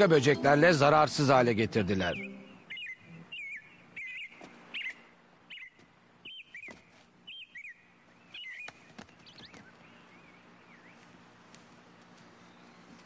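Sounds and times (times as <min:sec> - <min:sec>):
bird chirping: 0:02.0 - 0:11.1, 0:12.3 - 0:13.0.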